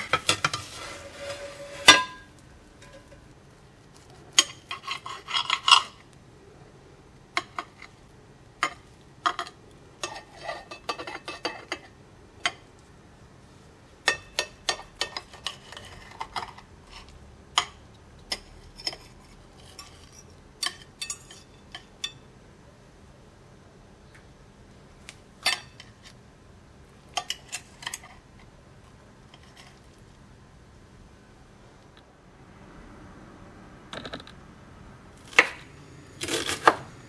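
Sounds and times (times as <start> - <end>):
knife and fork scraping a plate: 0.0 - 3.3, 3.9 - 6.1, 8.6 - 12.0, 14.1 - 22.2, 27.1 - 28.3, 29.3 - 30.0.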